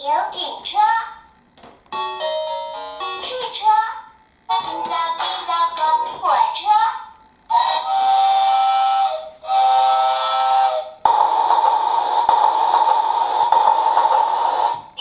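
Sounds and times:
toy train whistle toots: 7.5 - 12.1.

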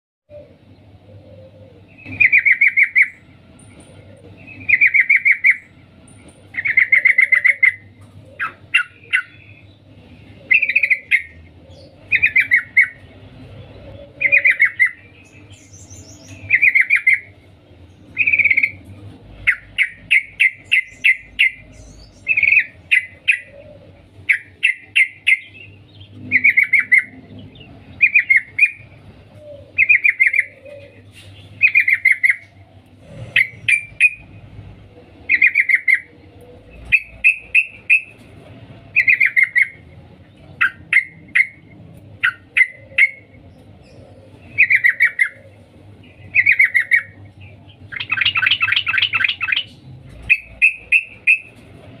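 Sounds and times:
bird chattering call: 1.8 - 3.3, 6.5 - 9.7, 10.4 - 13.1, 14.0 - 17.4, 18.1 - 34.4, 35.3 - 36.2, 36.8 - 38.2, 38.9 - 39.8, 40.4 - 51.6.

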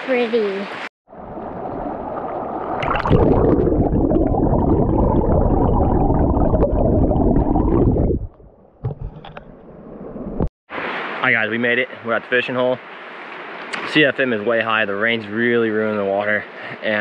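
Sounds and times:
water splashing: 1.1 - 9.1
underwater stream rush: 1.1 - 14.6.

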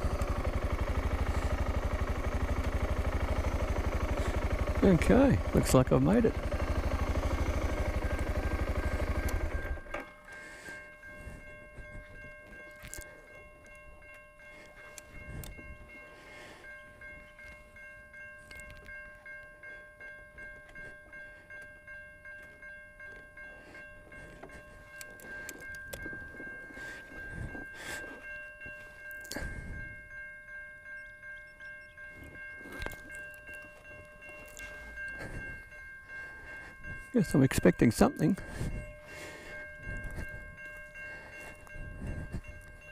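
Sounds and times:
motorcycle engine idling: 0.0 - 10.2
level crossing warning bell: 0.0 - 42.9.

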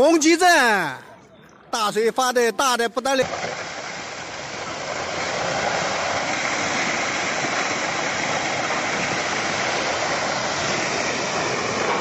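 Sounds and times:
rockslide rushing: 3.2 - 12.0.

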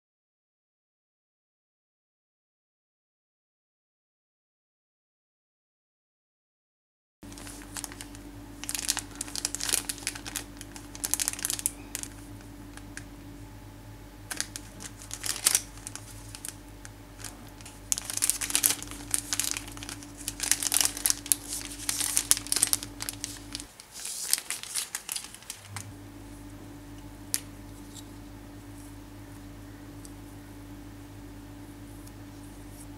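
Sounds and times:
plastic packaging crinkling: 7.2 - 13.1, 14.2 - 26.4, 27.3 - 29.0
steady low hum: 7.2 - 32.9.

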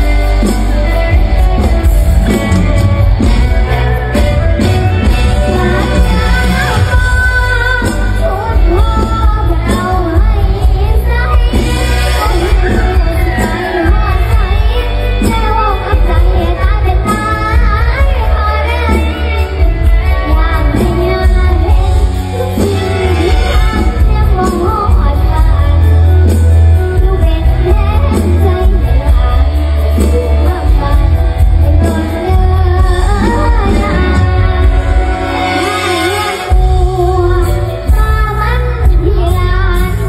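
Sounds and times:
band accompaniment with deep bass: 0.0 - 40.0
girl singing: 5.0 - 40.0.

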